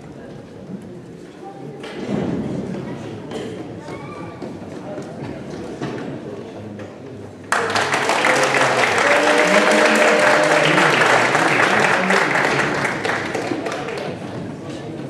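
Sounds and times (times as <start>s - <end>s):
audience applauding: 7.5s - 14.3s.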